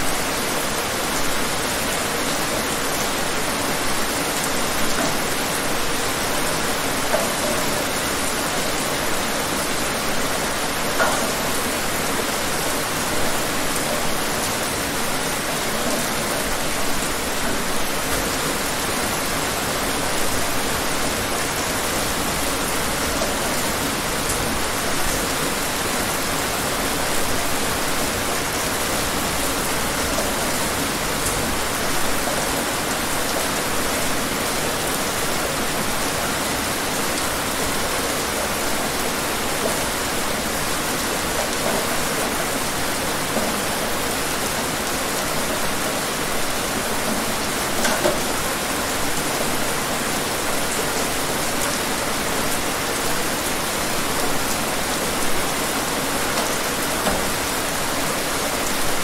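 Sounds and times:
rain falling: 0.0s - 59.0s
raindrop ticks: 11.0s - 11.6s.

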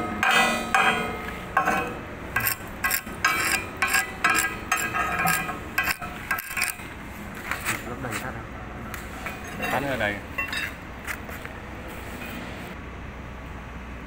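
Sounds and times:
hammer clinking on steel: 0.0s - 6.8s.

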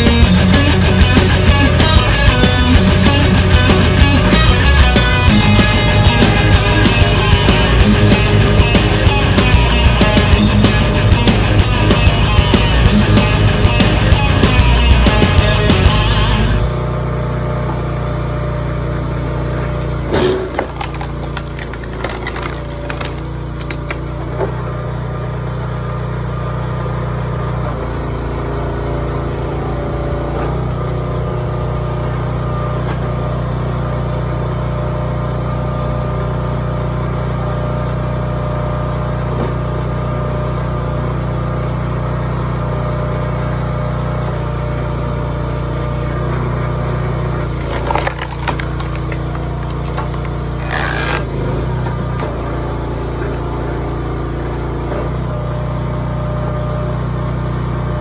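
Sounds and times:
small gas engine running: 0.0s - 58.0s
wood cracking and splintering: 20.0s - 24.3s, 47.5s - 52.4s.

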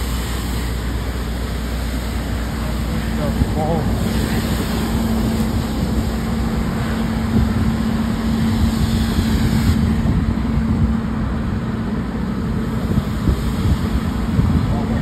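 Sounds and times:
fire engine pump humming: 0.0s - 15.0s
hose stream rushing: 0.0s - 15.0s
low wind rumble: 0.0s - 15.0s.

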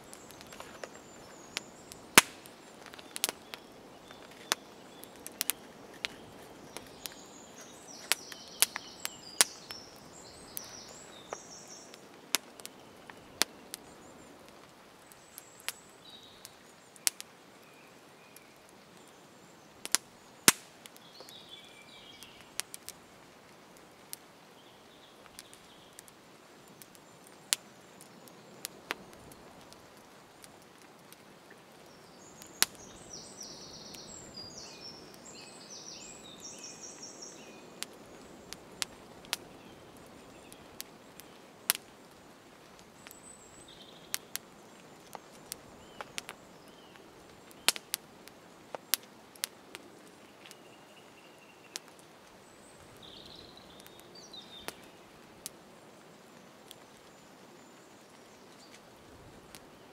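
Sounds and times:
birds chirping: 0.0s - 23.0s, 31.8s - 47.9s, 49.8s - 55.2s
wood fire crackling: 0.0s - 59.9s.

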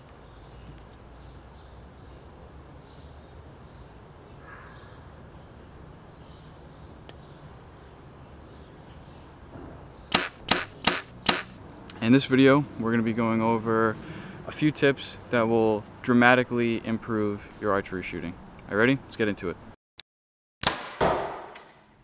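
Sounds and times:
birds chirping: 0.0s - 14.4s
sharp click: 10.1s - 11.6s.

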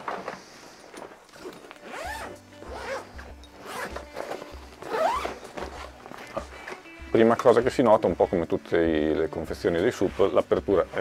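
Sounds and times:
zipper being pulled open: 1.3s - 6.4s.

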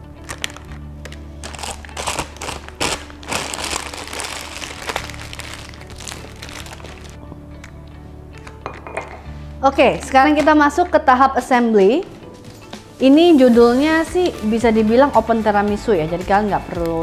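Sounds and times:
plastic bag crinkling: 0.1s - 7.2s.

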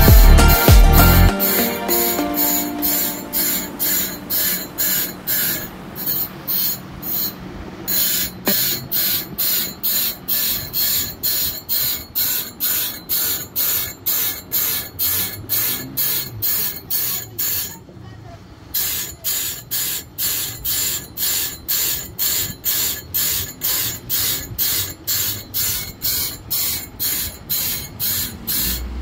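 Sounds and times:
grinder rasping on saw blade teeth: 1.5s - 17.8s, 18.7s - 29.0s.

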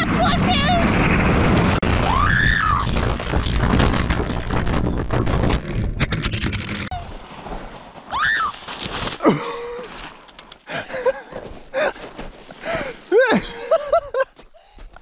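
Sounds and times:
person crying and groaning: 9.2s - 10.0s, 13.1s - 14.0s.

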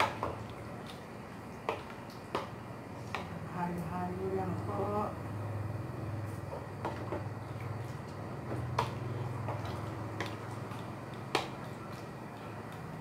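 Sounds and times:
wooden spoon stirring stew: 0.0s - 3.5s, 6.3s - 13.0s.

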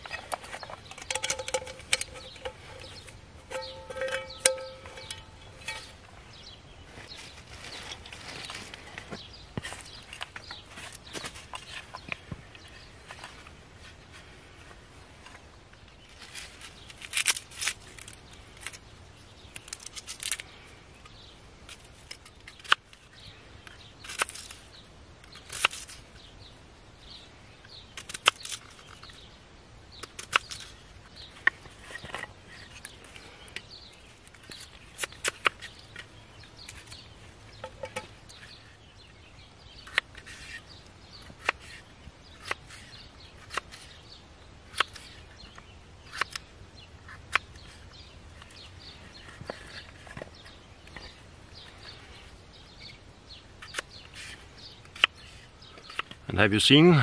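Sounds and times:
scraping rustles: 0.0s - 18.8s.

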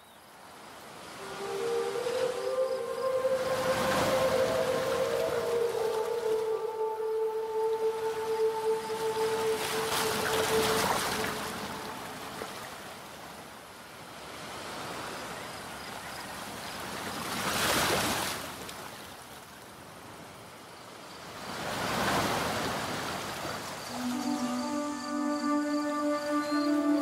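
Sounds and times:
waves breaking: 0.3s - 20.5s, 21.2s - 27.0s
waves washing in: 0.3s - 20.5s, 21.2s - 27.0s.

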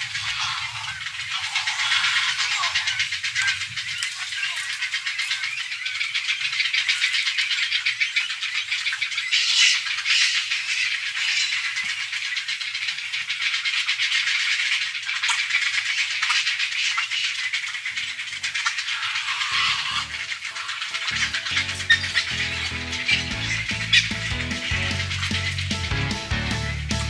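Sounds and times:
heron chicks clattering calls: 0.0s - 25.9s
music: 19.9s - 20.3s, 21.0s - 27.0s.

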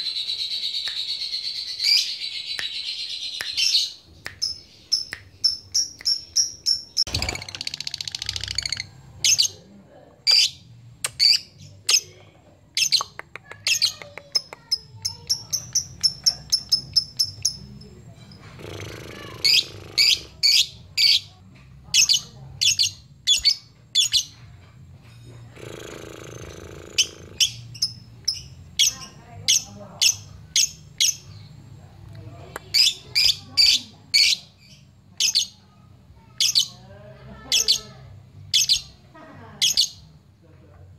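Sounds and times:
bird chirping: 0.0s - 12.2s, 12.8s - 24.4s, 25.6s - 31.8s.

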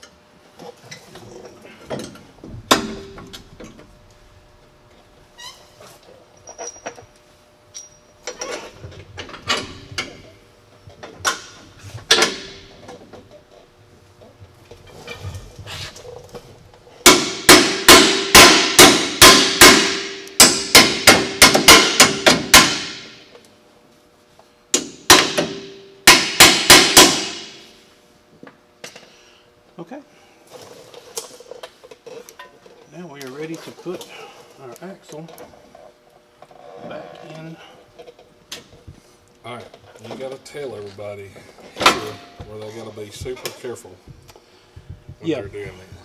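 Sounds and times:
hammer striking metal: 2.7s - 3.4s, 17.0s - 23.2s, 24.8s - 27.7s.

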